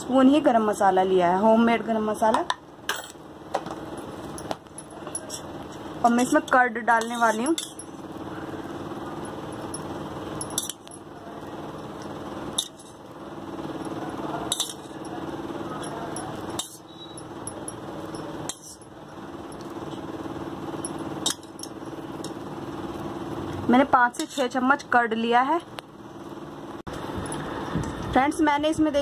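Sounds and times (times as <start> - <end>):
steady hum: 0.0 - 29.0
steel spoon clinking against bowl: 9.2 - 11.1, 13.8 - 19.7.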